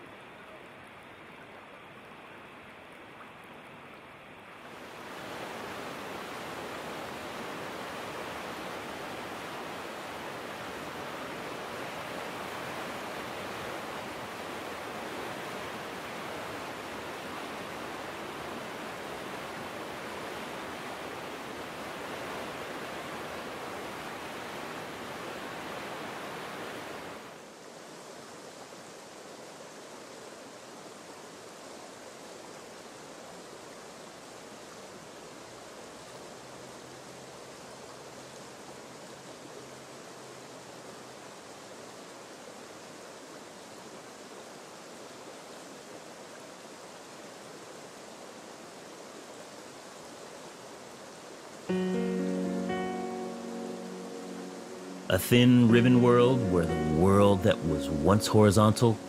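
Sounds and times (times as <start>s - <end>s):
water rushing over rocks: 0.2s - 32.1s, 53.8s - 59.0s.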